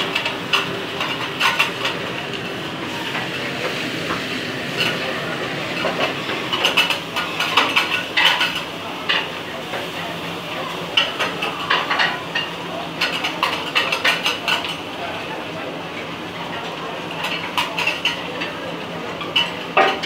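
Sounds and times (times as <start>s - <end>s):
steady kitchen hiss: 0.0s - 20.0s.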